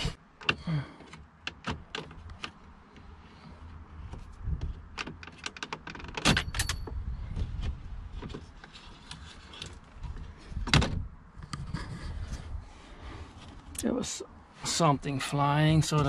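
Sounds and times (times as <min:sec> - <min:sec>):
plastic trim clicking and creaking: 0:04.7 - 0:06.3.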